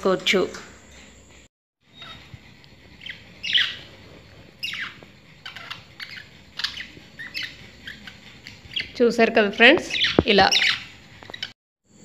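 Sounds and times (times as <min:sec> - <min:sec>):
parrots chirping and squawking: 0:01.8 - 0:09.0, 0:09.6 - 0:11.6.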